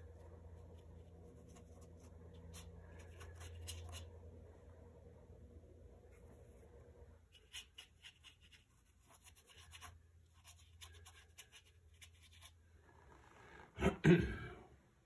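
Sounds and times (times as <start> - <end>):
paintbrush scratching on paper: 0.0 - 4.2, 7.3 - 12.6.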